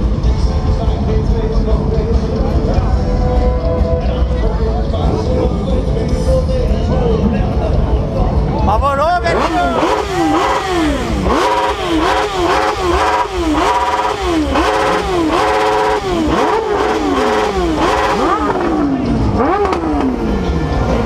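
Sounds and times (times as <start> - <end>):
motorcycle engine revving: 9.2 - 21.0.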